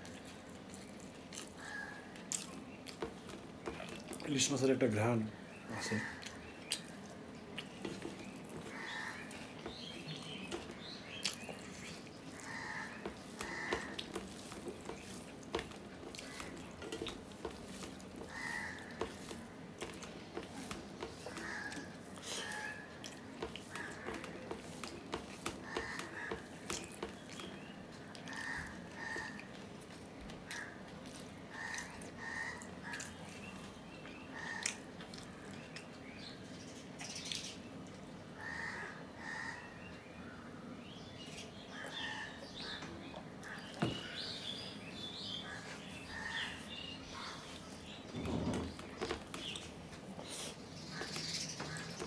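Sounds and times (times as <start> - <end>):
chewing: 0.0 - 4.2, 6.0 - 33.7, 34.4 - 35.9
fingers squishing rice: 5.8 - 33.8.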